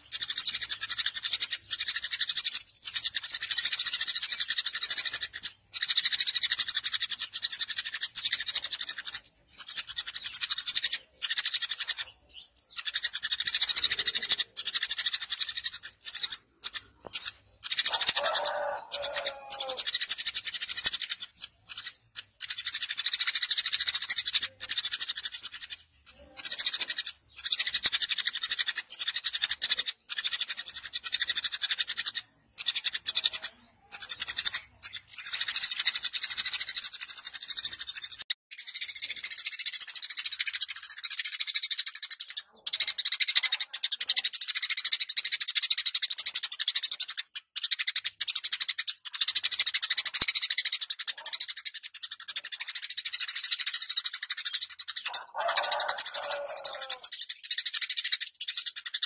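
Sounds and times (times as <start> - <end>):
sparrow chirping: 0.0 - 59.0
lower-pitched bird call: 17.2 - 25.0, 55.0 - 57.5.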